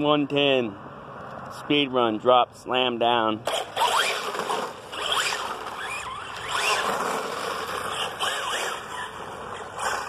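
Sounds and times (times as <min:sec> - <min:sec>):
electric motor whining: 0:03.5 - 0:10.0.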